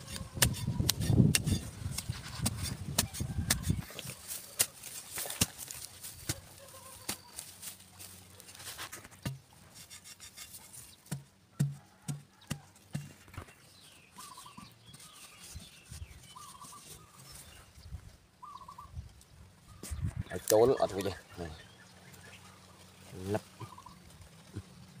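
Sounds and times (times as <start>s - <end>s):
hoe chopping and scraping soil: 0.0s - 17.4s
animal calls: 20.8s - 24.8s.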